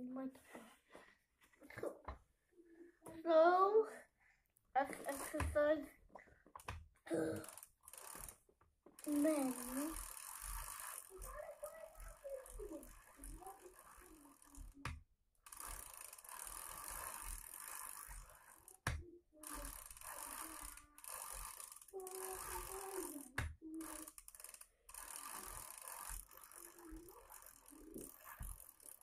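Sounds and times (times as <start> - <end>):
bicycle chain whirring and ratcheting: 5.0 - 5.6, 6.6 - 29.0.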